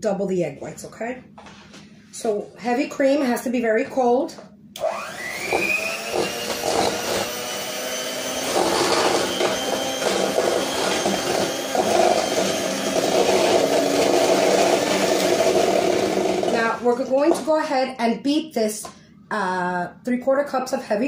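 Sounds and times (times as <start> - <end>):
electric hand mixer whipping cream: 4.8 - 17.4.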